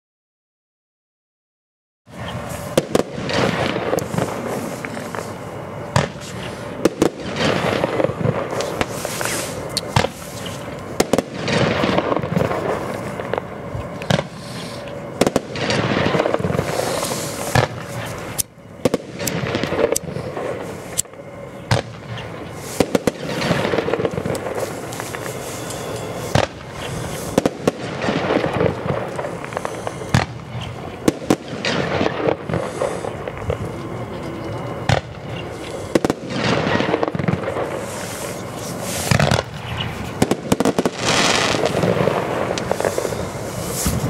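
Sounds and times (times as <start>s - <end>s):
firework aerial bursts: 2.1s - 44.0s
hiss and crackle of burning stars: 2.1s - 44.0s
firework launch thumps: 8.6s - 10.2s.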